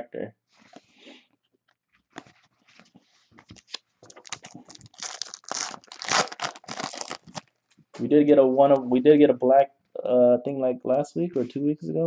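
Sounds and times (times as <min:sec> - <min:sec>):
foil pack tearing and crinkling: 0:04.2 - 0:07.5.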